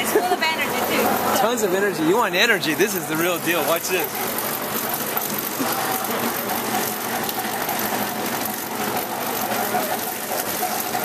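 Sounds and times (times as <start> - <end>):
sugar cane roller press drone: 0.0 - 11.0.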